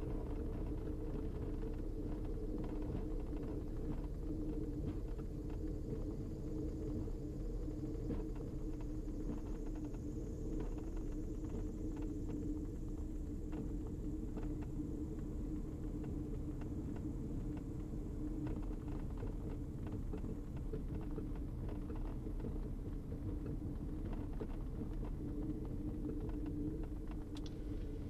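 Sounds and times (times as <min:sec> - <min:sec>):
faint ticks: 0:00.0 - 0:28.0.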